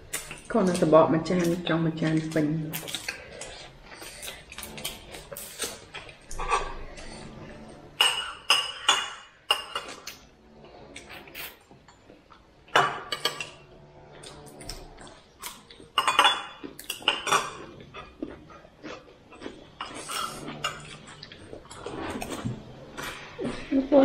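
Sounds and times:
cutlery and dishes clinking: 4.6 - 7.0, 7.9 - 10.2, 12.7 - 18.2, 19.8 - 23.2.

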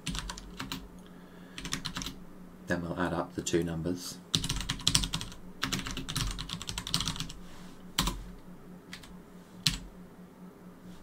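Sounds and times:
computer keyboard typing: 0.0 - 0.8, 1.6 - 2.2, 4.3 - 7.4, 8.0 - 8.2, 8.9 - 9.8.

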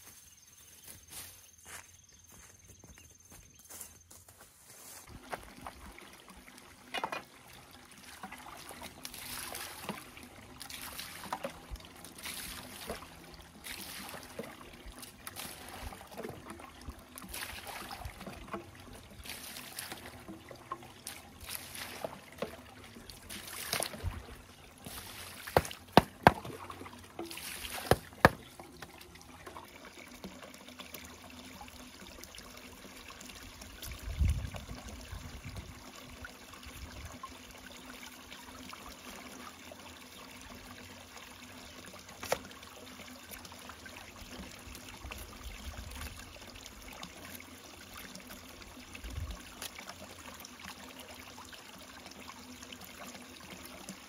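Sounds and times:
water splashing and trickling: 0.0 - 54.0
sharp knocks: 25.6 - 26.5.

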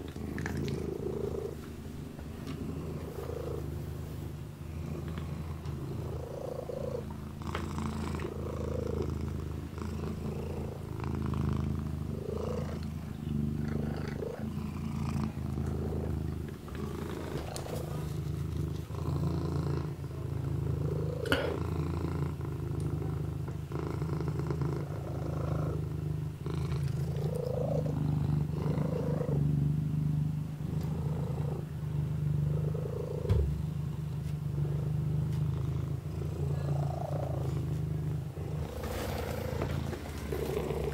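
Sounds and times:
kitten purring: 0.0 - 40.9
soft knocks: 33.2 - 33.6.

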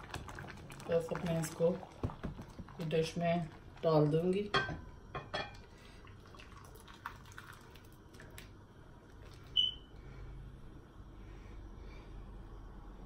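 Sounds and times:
thick food plopping and dripping: 0.0 - 4.2, 5.5 - 9.8.

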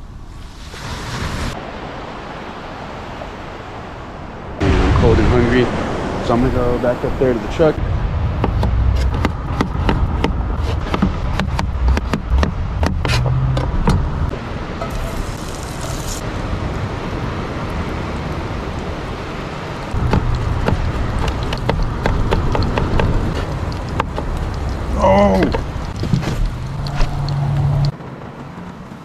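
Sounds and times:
steady low rumble: 6.9 - 19.2, 19.9 - 27.9
knife chopping on plastic board: 8.4 - 13.2.

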